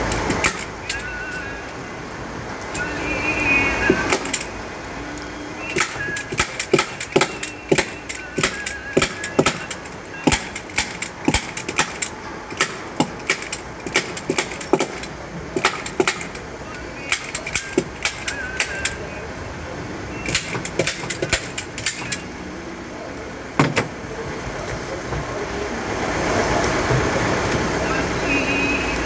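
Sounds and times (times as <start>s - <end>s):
staple gun firing clicks: 0.1s - 1.1s, 5.7s - 16.4s, 17.1s - 19.0s, 20.2s - 22.2s.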